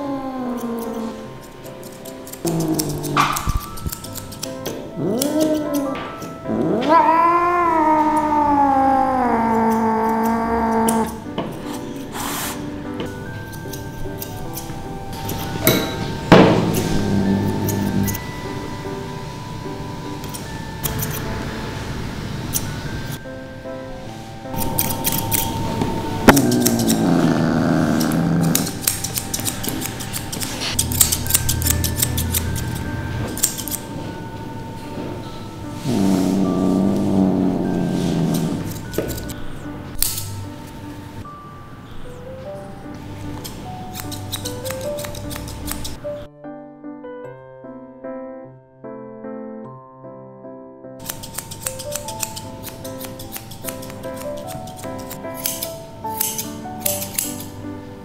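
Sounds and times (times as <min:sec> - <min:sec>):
cat meowing: 0:00.0 - 0:01.2, 0:05.0 - 0:11.2, 0:26.2 - 0:28.7
scissors snipping fur: 0:00.0 - 0:18.2, 0:20.2 - 0:21.4, 0:24.6 - 0:33.9, 0:35.8 - 0:40.4, 0:43.3 - 0:46.0, 0:51.0 - 0:57.6.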